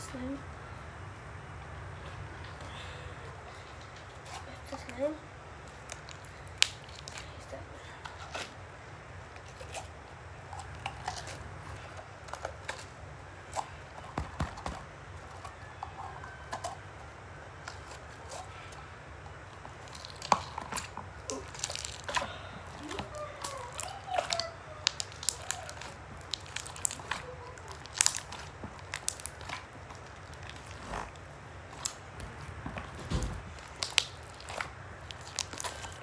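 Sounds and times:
slime squelching and popping: 5.6 - 7.5, 19.2 - 36.0.

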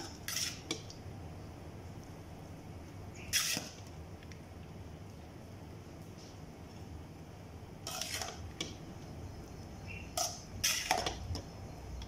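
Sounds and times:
metal spoon scraping a pot: 0.0 - 0.8, 3.2 - 3.8, 7.8 - 8.7, 9.9 - 11.4.

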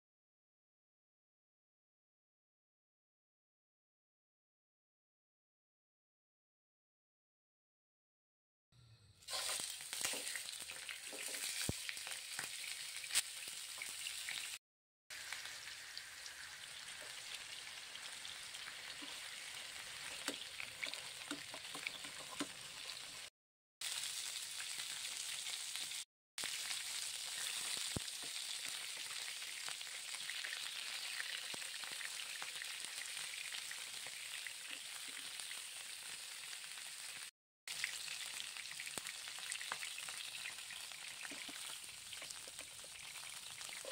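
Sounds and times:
chicken sizzling in frying pan: 9.1 - 43.9.

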